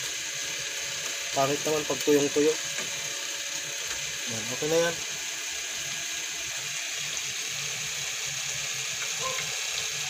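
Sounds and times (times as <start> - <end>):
stew simmering in a wok: 0.0 - 10.0.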